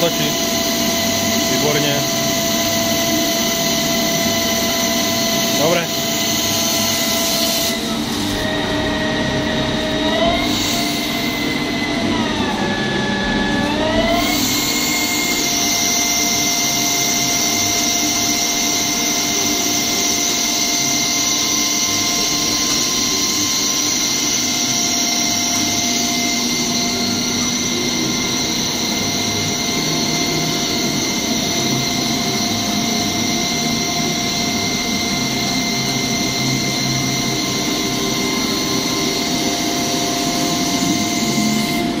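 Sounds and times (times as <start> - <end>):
lathe spindle whine: 0.0 - 42.0
metal cutting noise: 0.0 - 42.0.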